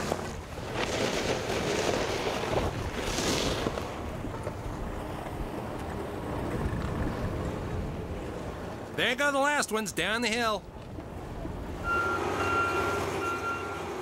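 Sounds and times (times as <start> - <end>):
ski scraping skid: 0.0 - 4.0
skis sliding over snow: 0.0 - 4.6
low wind rumble: 0.0 - 9.0.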